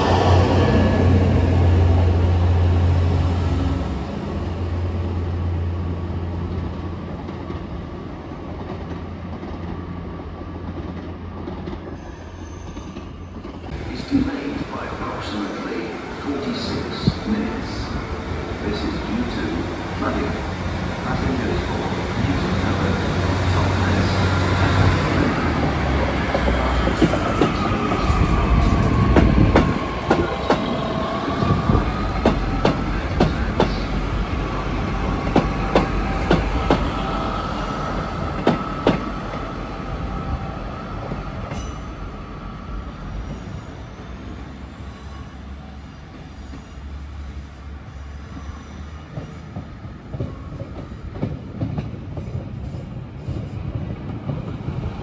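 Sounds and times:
train rumble: 0.0 - 55.0
train wheels squealing: 11.8 - 13.6, 40.0 - 51.2
clacks over rail joints: 28.7 - 34.0, 35.0 - 36.9, 38.4 - 39.4, 49.1 - 52.7.

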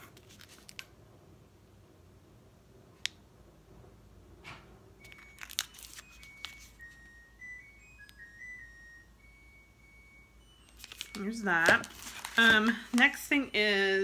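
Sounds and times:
snack wrapper crinkling: 0.0 - 0.9, 5.0 - 6.9, 10.7 - 13.0.

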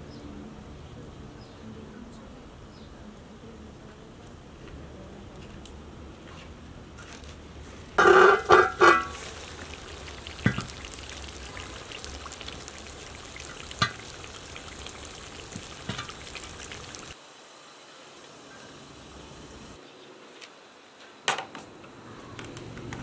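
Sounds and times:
tomato sauce sizzling and bubbling: 8.0 - 19.8.

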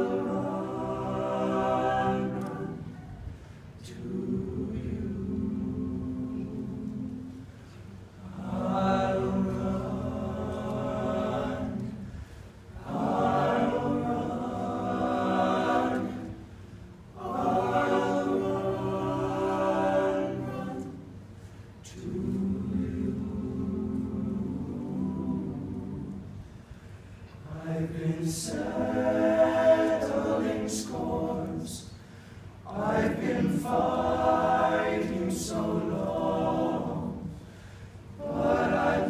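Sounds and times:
male a cappella group singing: 0.0 - 3.2, 3.8 - 16.6, 17.2 - 26.4, 27.4 - 39.0.

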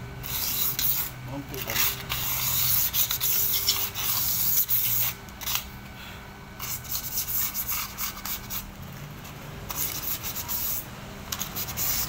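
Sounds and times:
sandpaper scraping: 0.2 - 5.6, 6.6 - 8.7, 9.7 - 10.8, 11.4 - 12.0.

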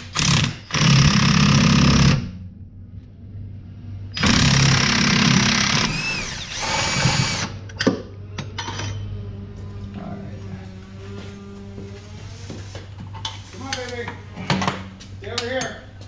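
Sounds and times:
impact wrench hammering and whining: 0.0 - 2.3, 4.2 - 9.0.

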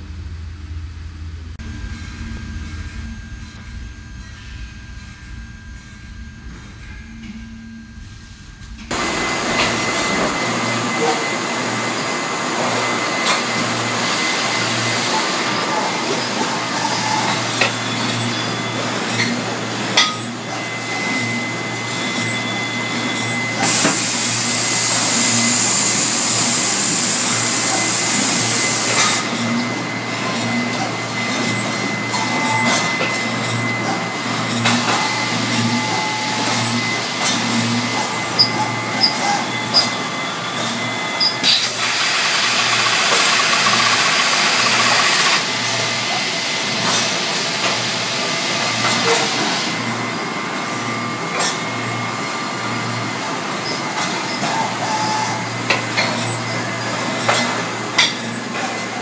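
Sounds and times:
drilling machine hum: 8.9 - 19.8, 41.2 - 46.0
loud hissing: 41.4 - 45.4.

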